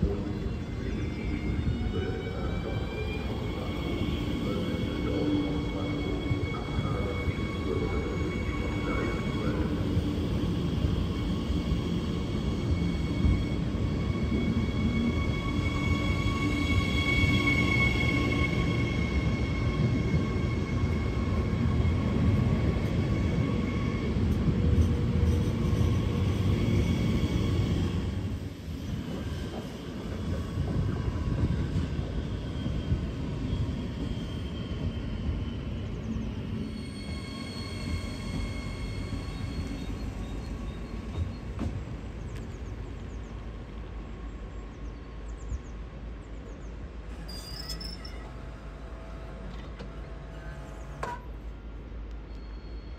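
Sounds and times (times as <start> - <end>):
train rumble: 0.0 - 52.8
high train whine: 0.0 - 52.9
wheel squeals: 32.2 - 41.8, 47.1 - 48.7.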